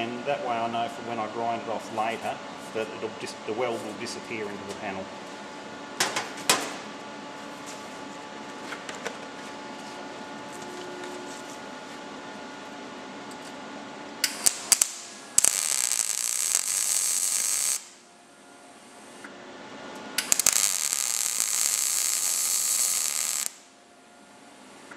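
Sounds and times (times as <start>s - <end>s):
low hum: 9.8s - 13.2s
welding arc crackle: 14.2s - 18.0s, 20.2s - 23.7s.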